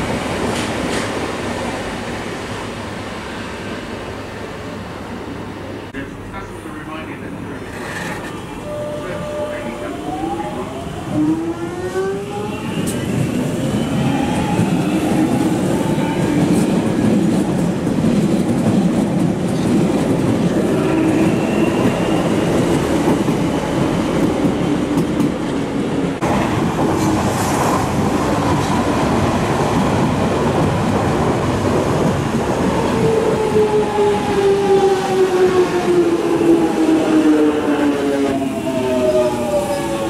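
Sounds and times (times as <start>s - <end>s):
train wheel rumble and clatter: 0.0s - 1.6s, 12.8s - 34.5s
train braking: 7.6s - 16.8s.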